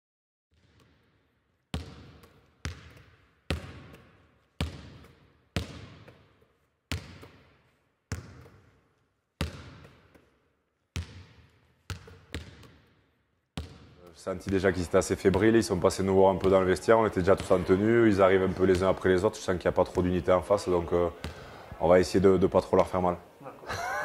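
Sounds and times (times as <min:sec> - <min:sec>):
ball bouncing on hard floor: 0:00.5 - 0:16.6.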